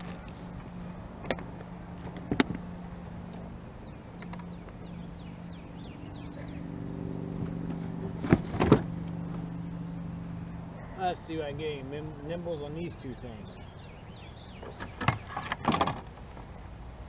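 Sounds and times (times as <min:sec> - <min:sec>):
low engine hum: 0:00.0 - 0:17.0
bird chirping: 0:03.6 - 0:07.7, 0:09.1 - 0:15.6.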